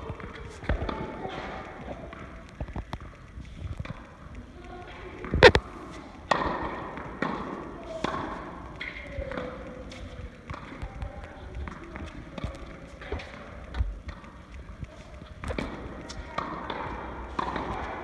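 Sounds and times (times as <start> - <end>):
tennis ball bouncing on court: 6.3 - 11.0, 11.6 - 17.9.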